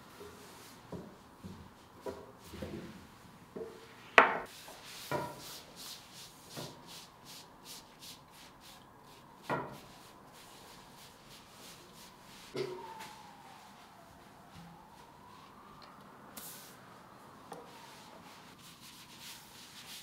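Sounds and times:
dough sheets rubbing and rustling: 17.7s - 20.0s.

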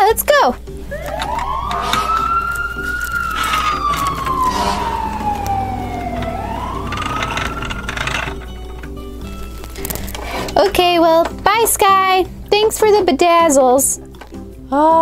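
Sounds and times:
toy fire truck siren wailing: 0.9s - 8.8s.

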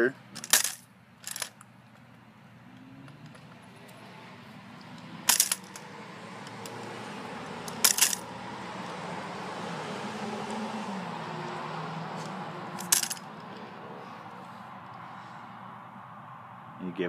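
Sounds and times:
metal crutch clanking on concrete: 0.3s - 1.6s, 4.8s - 5.8s, 7.6s - 8.3s, 12.8s - 13.7s.

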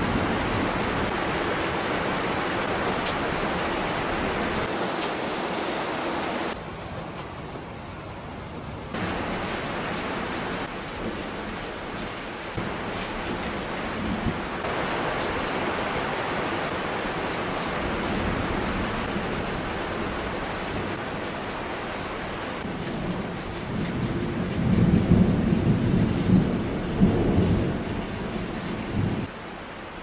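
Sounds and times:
heavy rain falling: 0.0s - 30.0s.

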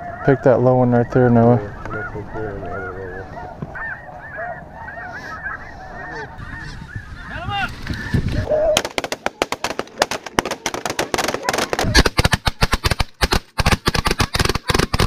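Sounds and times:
geese honking: 0.0s - 8.8s.

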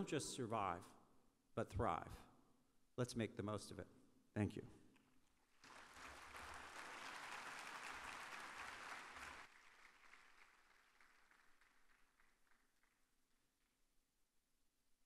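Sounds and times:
large audience applauding: 5.5s - 13.1s.

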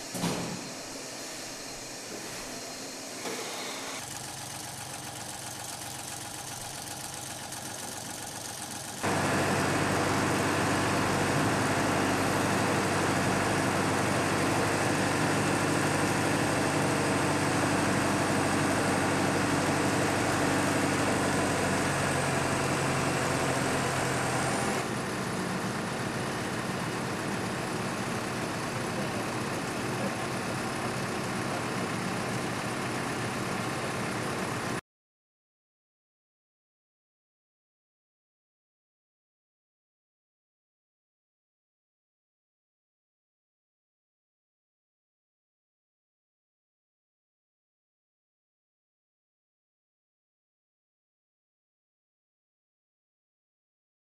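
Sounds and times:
heavy machine engine idling: 4.0s - 34.8s.

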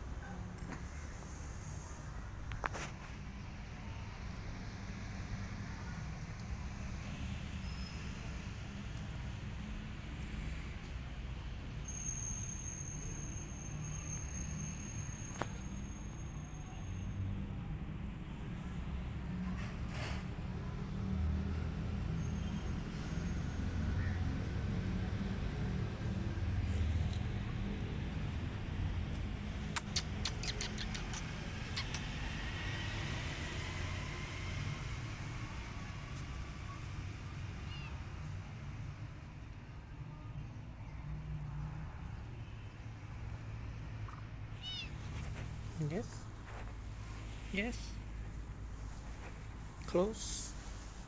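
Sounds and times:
faint short chirp: 7.5s - 8.2s, 11.8s - 17.2s
sharp clicks: 29.7s - 32.1s.

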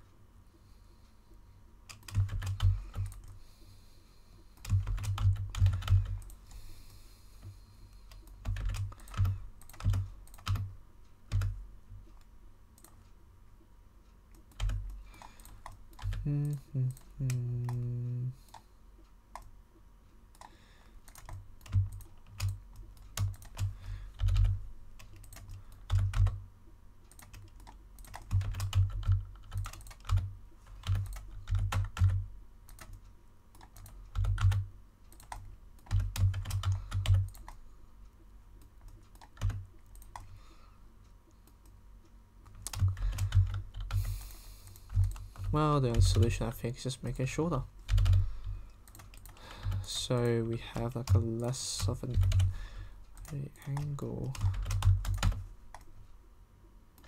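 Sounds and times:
computer keyboard keystrokes: 1.9s - 3.4s, 4.6s - 6.4s, 7.4s - 10.7s, 11.3s - 11.6s, 12.8s - 13.0s, 14.3s - 18.7s, 20.3s - 26.4s, 27.1s - 37.6s, 38.6s - 40.4s, 42.4s - 46.3s, 47.8s - 52.6s, 53.2s - 55.9s.

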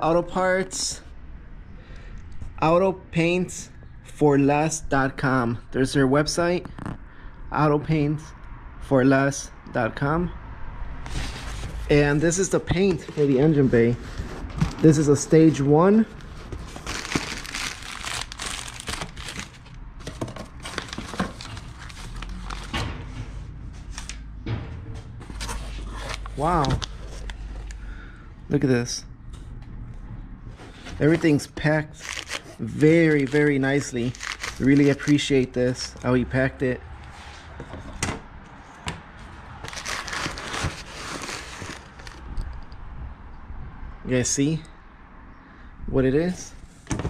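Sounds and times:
cardboard box flaps rustling: 11.1s - 11.9s, 12.8s - 14.9s, 16.4s - 21.6s, 39.6s - 42.2s
plastic bag crinkling: 16.5s - 22.7s, 31.9s - 35.3s, 39.6s - 42.3s.

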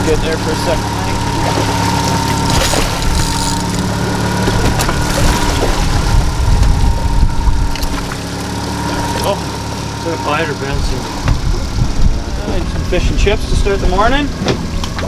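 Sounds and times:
outboard motor idling: 0.0s - 15.0s.

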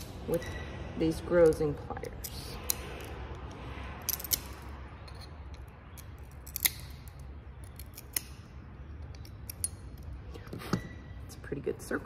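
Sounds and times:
pliers snapping glass: 5.9s - 8.4s.

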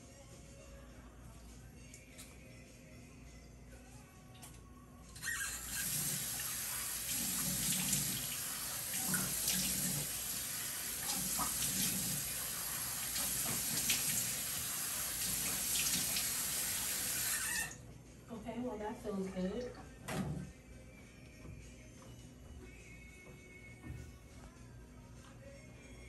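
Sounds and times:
sink tap running: 5.2s - 17.8s.

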